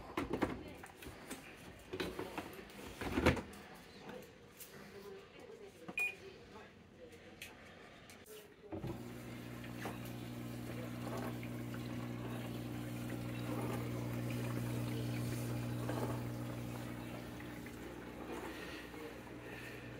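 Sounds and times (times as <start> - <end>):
dishwasher pump humming: 8.7 - 19.9
water spraying on dishes: 8.8 - 19.9.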